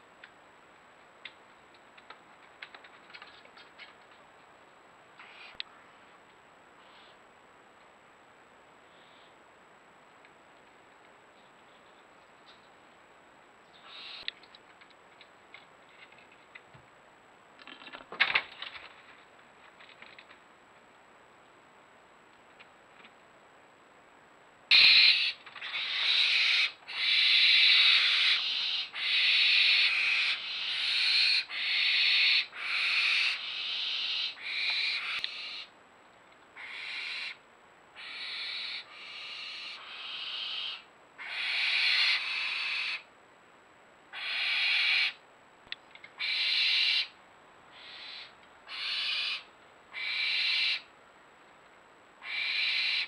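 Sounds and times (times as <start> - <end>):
barn owls screeching: 24.7 - 35.7, 36.6 - 37.4, 38.0 - 43.1, 44.2 - 45.2, 46.2 - 50.9, 52.2 - 53.0.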